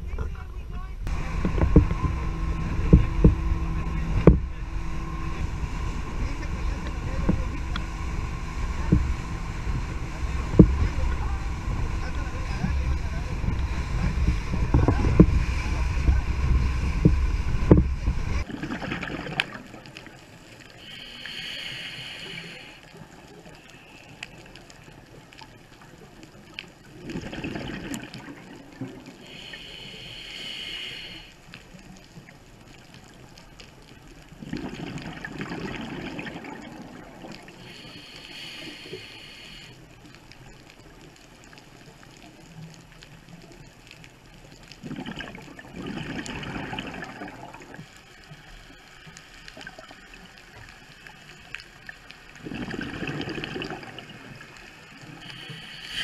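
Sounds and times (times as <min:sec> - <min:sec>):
boat noise: 0:00.0 - 0:42.8
wind: 0:00.0 - 0:56.0
gurgling exhaled bubbles: 0:08.7 - 0:20.2, 0:26.9 - 0:29.8, 0:34.3 - 0:38.5, 0:44.8 - 0:48.0, 0:51.3 - 0:56.0
regulator hiss on inhale: 0:20.7 - 0:24.5, 0:29.1 - 0:31.7, 0:37.5 - 0:40.0, 0:54.0 - 0:56.0.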